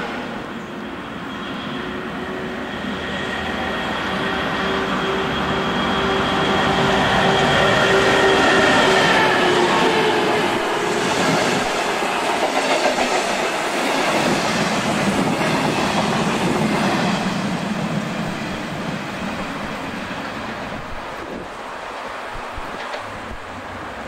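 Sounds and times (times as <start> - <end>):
diesel locomotive engine: 0.0 - 24.0
train wheels running over rails: 6.2 - 23.5.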